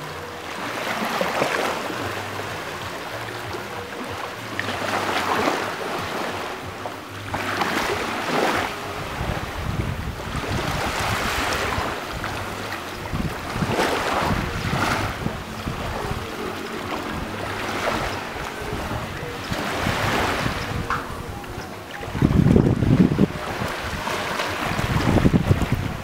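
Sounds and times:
low wind rumble: 1.7s - 26.0s
waves breaking on pebble beach: 4.1s - 16.8s.

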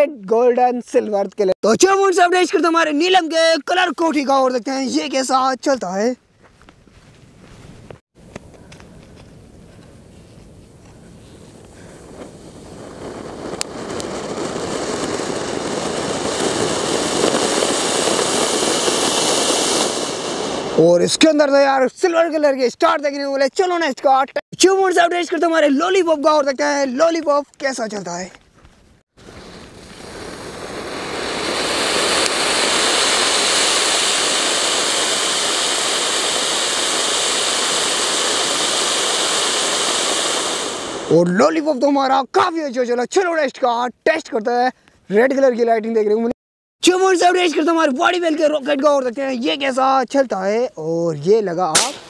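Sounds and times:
firework fountain hissing: 11.3s - 21.1s, 29.2s - 41.3s
sharp cracks: 11.6s - 21.1s, 29.2s - 41.2s, 51.7s - 52.0s
small firework pop: 17.2s - 19.9s, 51.7s - 52.0s.

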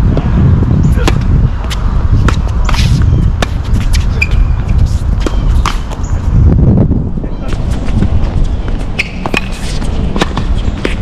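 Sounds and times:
steady low rumble: 0.0s - 11.0s
tennis ball bounces: 0.9s - 6.1s, 7.5s - 11.0s.

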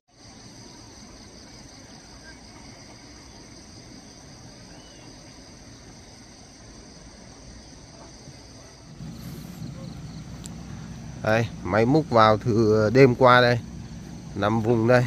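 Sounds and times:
insect drone: 0.1s - 15.0s
low rumble: 8.8s - 15.0s.

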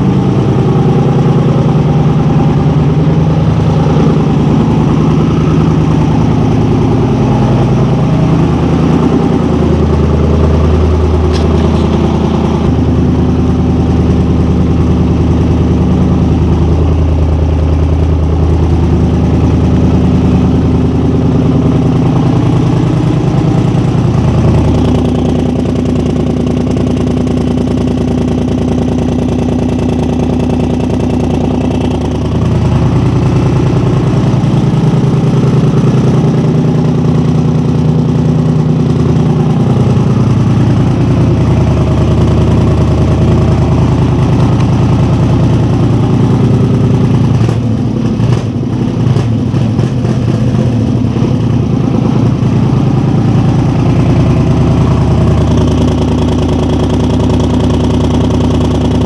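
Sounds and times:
loud atv engine running: 0.0s - 59.0s.

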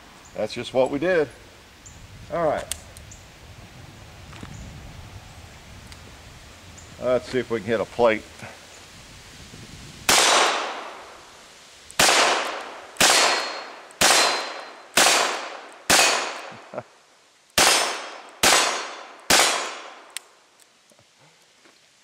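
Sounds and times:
bullets ringing on steel plates: 13.1s - 14.7s.

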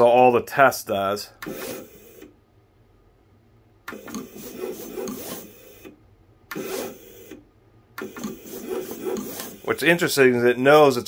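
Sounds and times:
vinyl cutter motors whirring: 3.9s - 7.4s, 8.0s - 10.1s.

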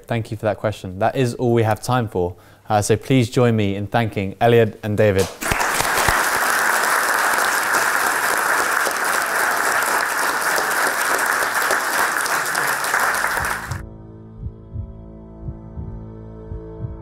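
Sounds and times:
audience applauding: 5.2s - 13.8s
soft ambient music: 13.1s - 17.0s.

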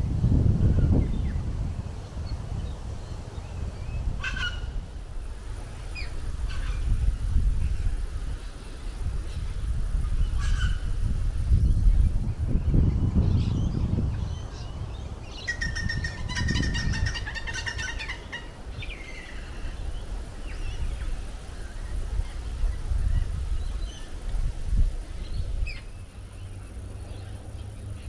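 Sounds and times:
wind noise on microphone: 0.0s - 26.9s
bird trilling song: 11.5s - 22.4s.

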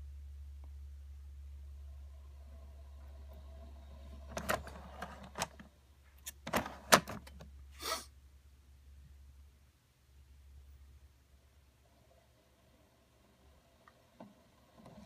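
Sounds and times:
steady low hum: 0.0s - 15.0s
short hiss: 7.7s - 8.1s.

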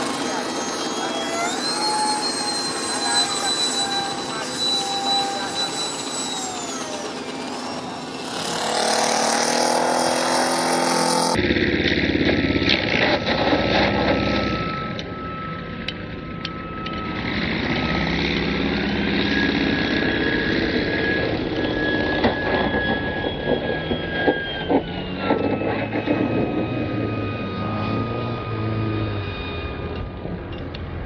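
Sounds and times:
model jet high whine: 0.0s - 31.0s
model plane propeller motor whine: 0.0s - 31.0s.

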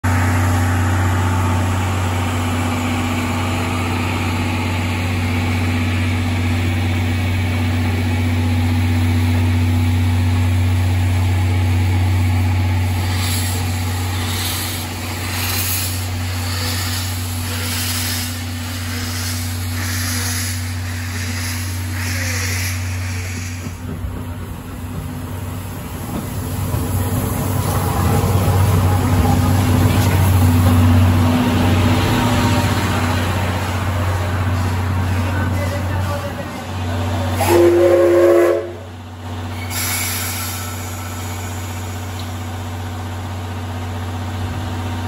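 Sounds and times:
steam locomotive exhaust chuffs: 0.1s - 45.0s
steam hissing: 12.7s - 28.8s, 39.5s - 42.6s.

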